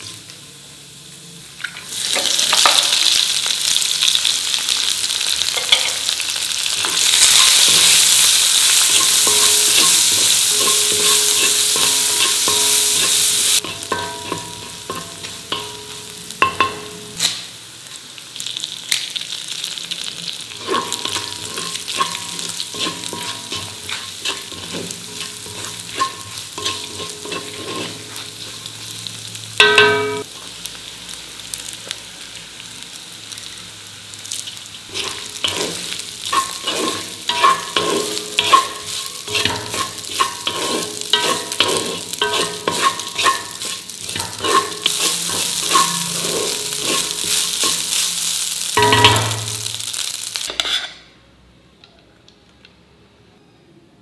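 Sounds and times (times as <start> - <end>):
food sizzling in oil: 0.0 - 51.0
spatula scraping pan: 6.7 - 15.9, 20.6 - 28.8, 34.9 - 48.1, 50.5 - 51.0
metallic clangs: 29.6 - 30.3, 48.8 - 49.8.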